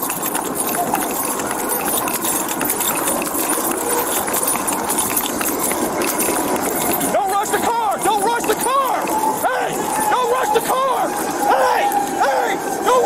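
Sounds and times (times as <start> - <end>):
gear knocking and rattling: 0.0 - 13.0
running footsteps on pavement: 0.0 - 13.0
steady rush of noise: 0.0 - 13.0.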